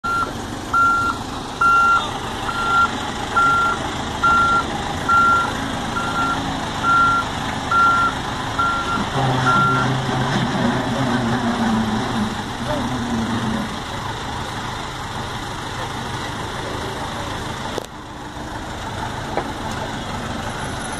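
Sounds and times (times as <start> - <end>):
vehicle backup alarm beeping: 0.0 - 10.1
diesel engine running: 0.0 - 20.9.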